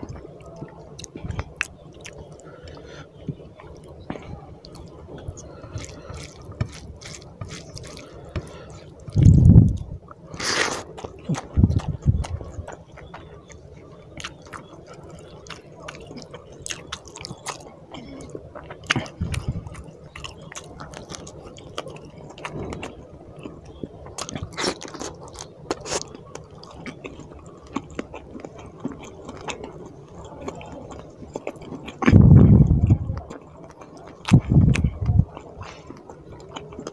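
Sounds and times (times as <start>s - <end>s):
wet chewing and lip smacks: 0.0s - 36.9s.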